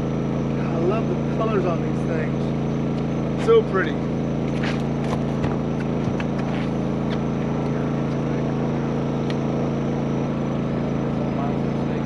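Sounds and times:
boat motor drone: 0.0 - 12.0.

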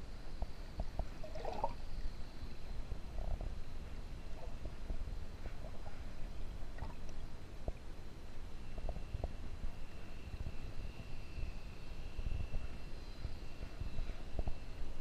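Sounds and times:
underwater low rumble: 0.0 - 15.0
water gurgles: 0.8 - 2.2, 6.6 - 7.9.

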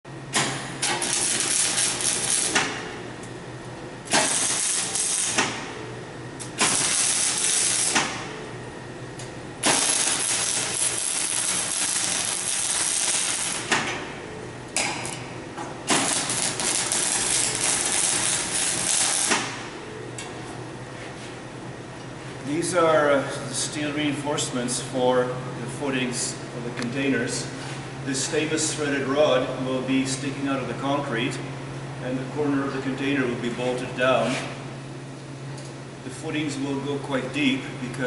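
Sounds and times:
electric arc welding: 0.8 - 2.9, 4.1 - 5.8, 6.4 - 8.4, 9.6 - 13.9, 15.8 - 19.8.

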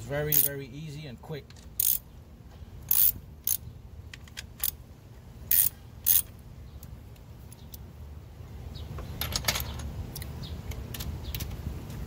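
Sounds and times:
ratchet clicking: 0.3 - 0.5, 1.8 - 2.0, 2.9 - 3.6, 5.5 - 6.3.

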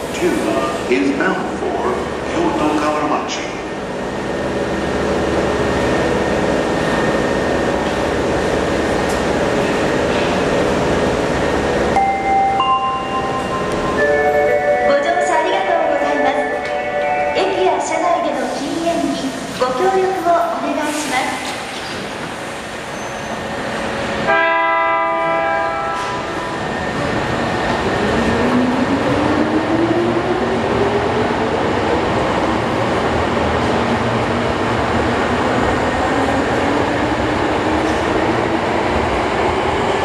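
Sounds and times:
rail rumbling: 0.0 - 40.0
subway train horn blast: 24.2 - 26.6.

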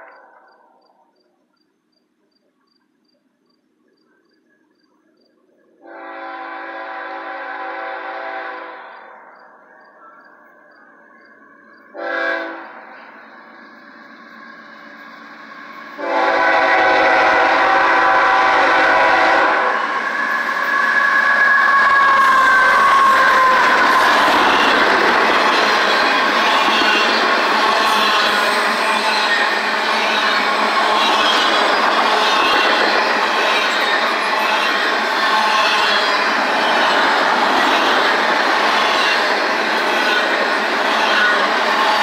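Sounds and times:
train rumble: 2.8 - 42.0
locomotive horn blasts: 5.8 - 9.0, 11.9 - 12.8, 16.0 - 19.8.

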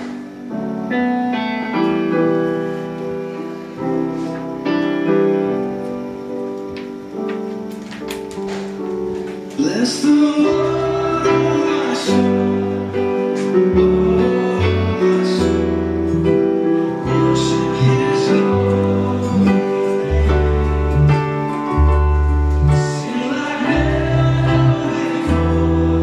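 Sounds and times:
acoustic guitar: 0.0 - 26.0
keyboard chords: 0.0 - 26.0
bass notes: 10.6 - 23.0, 23.7 - 26.0.

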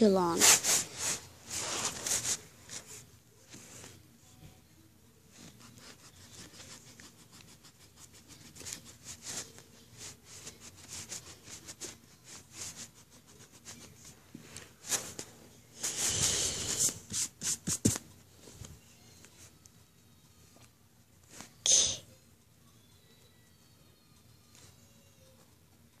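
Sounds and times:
eraser rubbing on paper: 0.2 - 2.8, 5.4 - 14.1, 15.8 - 18.0
brushing: 0.3 - 3.9, 5.3 - 14.0.

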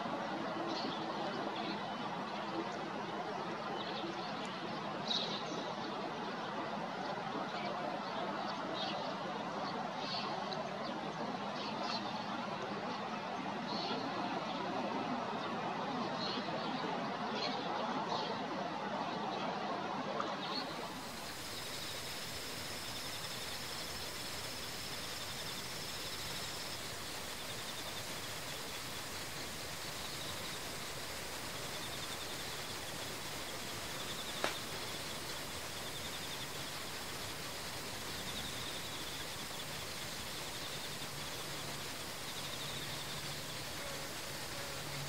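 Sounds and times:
steady hiss: 20.4 - 45.0
insects trilling: 20.6 - 45.0
sharp click: 34.4 - 34.7.

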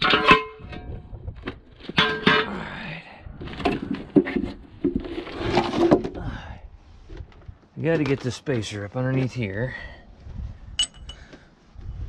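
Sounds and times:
metal tools clanking and scraping: 0.0 - 1.0, 1.9 - 2.6, 10.8 - 11.3.

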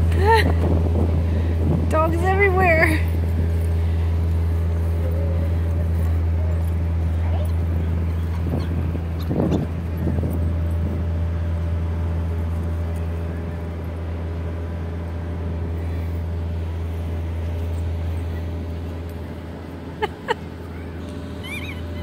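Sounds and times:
city traffic rumble: 0.0 - 22.0
dog squeaky toy squeaks: 21.4 - 22.0.

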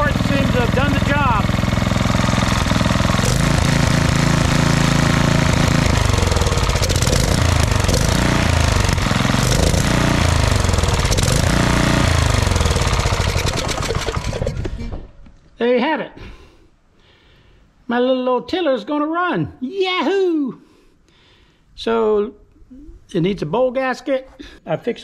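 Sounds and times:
small engine running and revving: 0.0 - 14.7.

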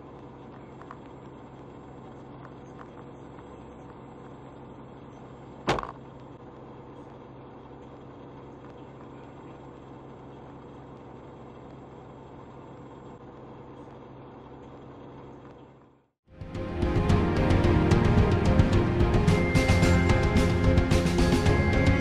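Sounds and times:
truck engine drone: 16.3 - 22.0.

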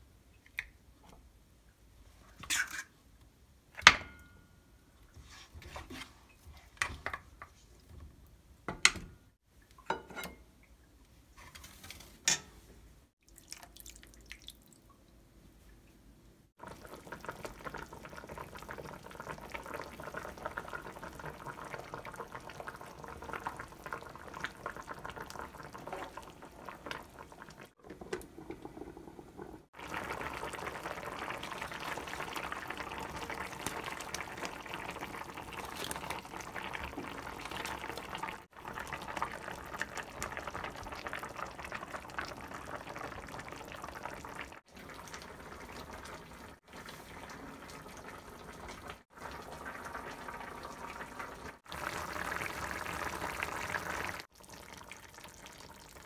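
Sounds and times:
liquid boiling in a pot: 16.6 - 56.0.

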